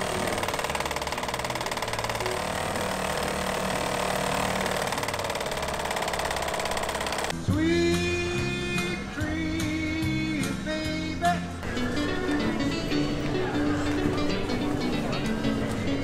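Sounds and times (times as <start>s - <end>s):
outboard motor running: 0.0s - 7.3s
music: 7.3s - 16.0s.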